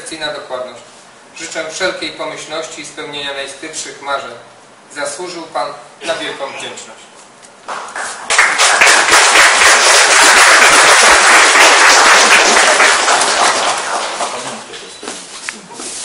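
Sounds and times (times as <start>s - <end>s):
audience applauding: 7.7s - 14.7s.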